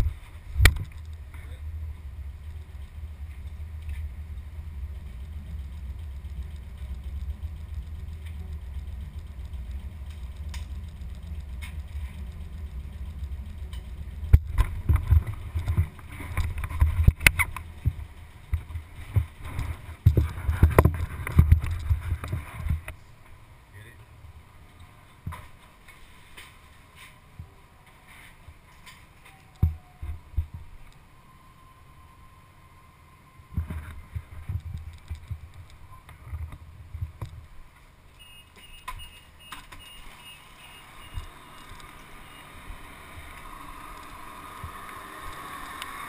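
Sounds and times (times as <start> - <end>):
train carriage rumble: 0.0 - 22.9
bike knocking and rattling: 0.0 - 23.4, 24.6 - 27.6, 28.3 - 30.9, 33.5 - 46.0.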